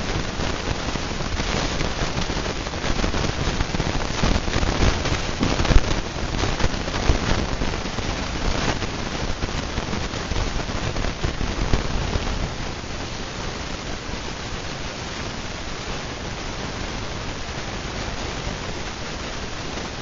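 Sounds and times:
dense crackling hiss with ticks: 0:00.0 - 0:20.0.

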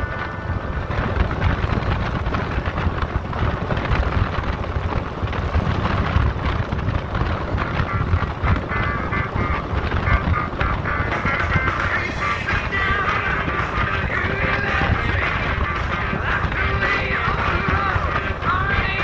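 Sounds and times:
faint music: 0:00.0 - 0:19.0
motorcycle at speed: 0:00.0 - 0:19.0
wind rushing over microphone: 0:00.0 - 0:19.0.

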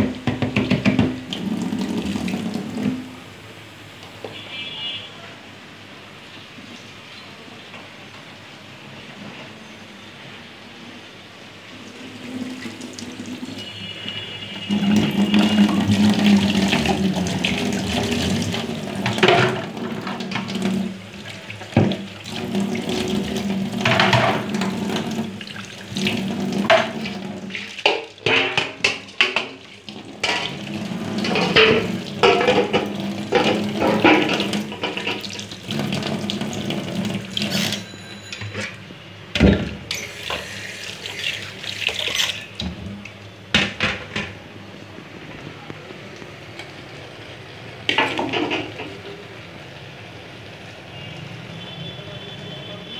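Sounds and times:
metal pot knocking against sink: 0:00.0 - 0:01.3, 0:19.0 - 0:20.8, 0:23.8 - 0:25.1, 0:27.8 - 0:29.6, 0:31.2 - 0:35.3, 0:47.9 - 0:49.0
tap water running into sink: 0:00.0 - 0:03.2, 0:11.8 - 0:37.9, 0:39.4 - 0:44.3, 0:47.9 - 0:49.2.

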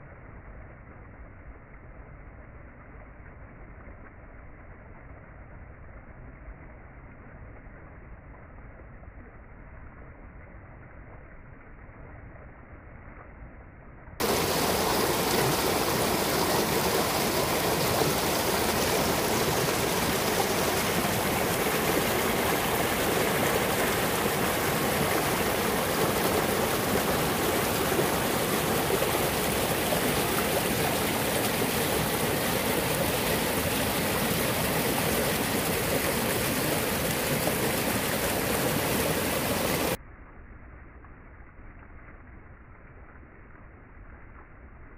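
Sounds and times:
stream rushing over rocks: 0:14.2 - 0:40.0.

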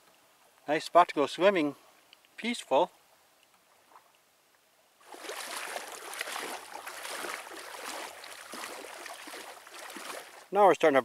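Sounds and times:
water sloshing and splashing: 0:05.0 - 0:10.5.

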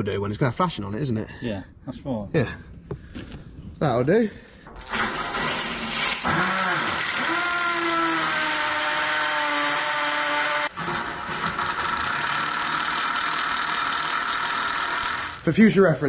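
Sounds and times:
impact driver driving screws: 0:05.0 - 0:15.4.

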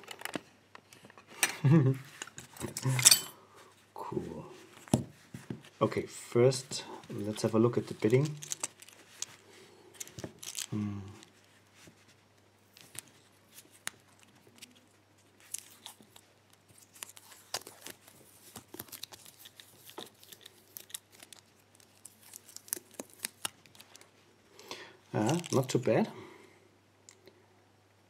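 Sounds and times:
plastic sleeve crinkling and tearing: 0:07.1 - 0:24.2, 0:25.1 - 0:25.9.

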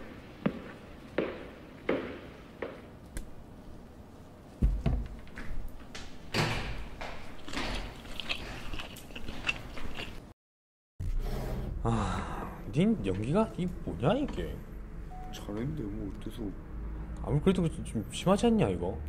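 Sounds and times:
door banging shut: 0:06.3 - 0:07.0.

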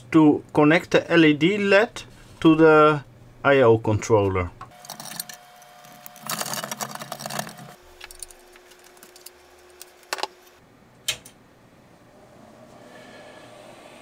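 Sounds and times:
expansion card and cable rattling: 0:04.8 - 0:10.4.

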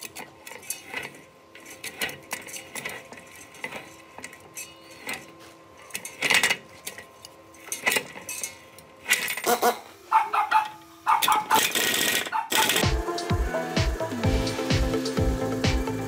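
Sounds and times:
hand tool clinking on metal: 0:00.0 - 0:09.5.

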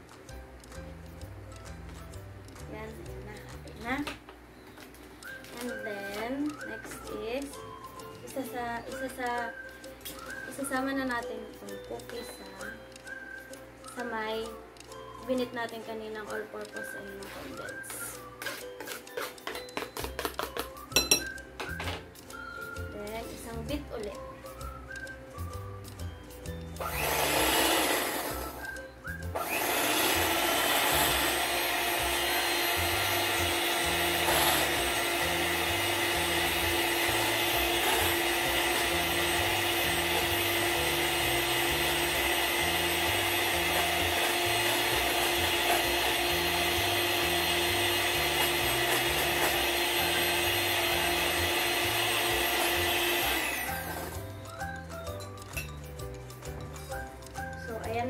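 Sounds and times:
background music with a beat: 0:00.0 - 0:58.0
electric hand mixer beating: 0:16.8 - 0:22.0, 0:26.8 - 0:54.9.

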